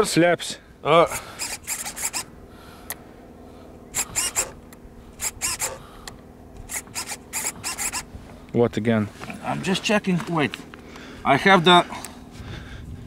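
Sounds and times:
faint steady hum: 0.0 - 13.0
servos whirring: 0.9 - 3.0, 3.8 - 8.4.

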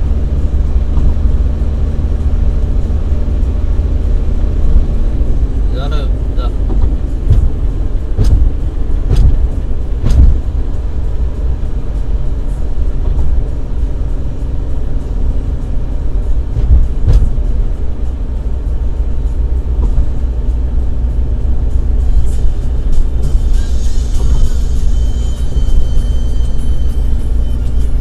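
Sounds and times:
car interior road rumble: 0.0 - 28.0
dull thumps: 0.8 - 1.4, 6.6 - 10.5, 16.4 - 17.6.

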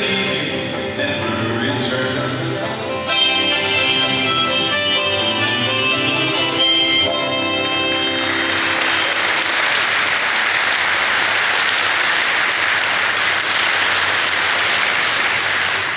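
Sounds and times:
acoustic string band music: 0.0 - 10.1
audience applauding: 7.9 - 15.9.

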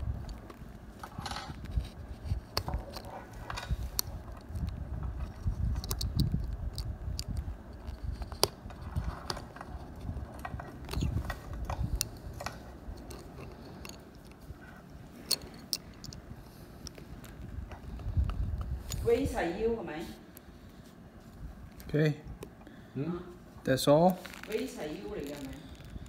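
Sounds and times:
low handling rumble: 0.0 - 21.9
wrench clicking and scraping on metal: 15.2 - 16.2.

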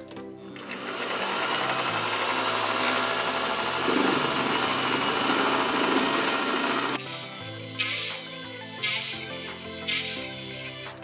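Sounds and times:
lathe motor running: 0.6 - 7.0
lathe tool cutting metal: 0.6 - 8.1.

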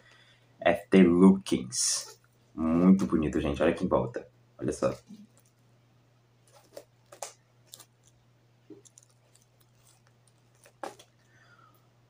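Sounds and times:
book being handled: 6.4 - 11.3.

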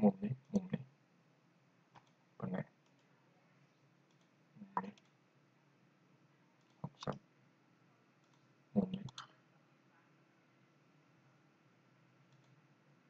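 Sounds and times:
computer mouse clicks: 1.9 - 2.2, 2.8 - 3.1, 4.1 - 5.2, 6.6 - 7.2, 8.2 - 9.3, 12.3 - 12.6.

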